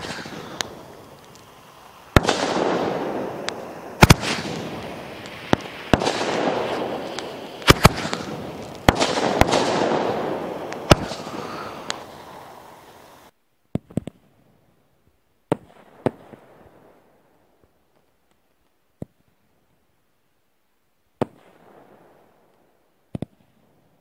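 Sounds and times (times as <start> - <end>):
firework hiss: 0.0 - 13.4
firework bangs: 0.0 - 14.2.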